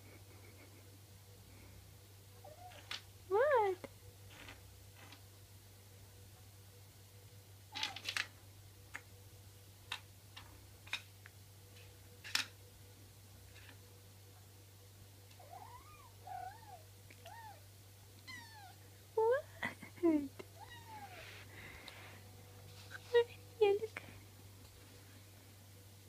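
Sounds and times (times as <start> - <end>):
kitten chirping meows: 18.2 - 18.8, 20.6 - 21.2.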